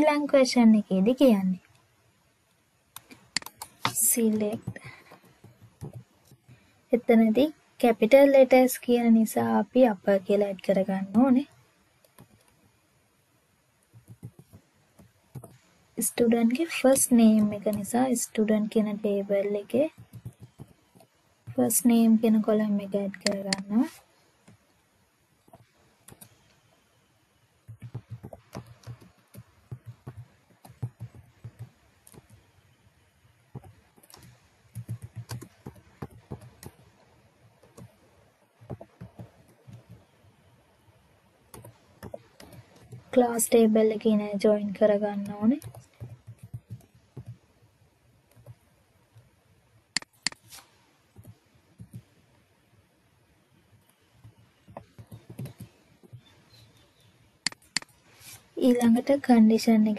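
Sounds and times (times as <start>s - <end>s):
sharp clicks: 3.0s - 4.0s, 50.0s - 50.5s, 57.4s - 58.0s
computer keyboard typing: 3.0s - 6.6s, 13.9s - 15.6s, 16.4s - 23.9s, 25.5s - 26.4s, 27.6s - 32.5s, 33.5s - 40.1s, 41.5s - 47.4s, 48.3s - 48.6s, 50.0s - 50.6s, 51.2s - 52.1s, 53.8s - 56.4s
keyboard keystrokes: 33.5s - 36.8s.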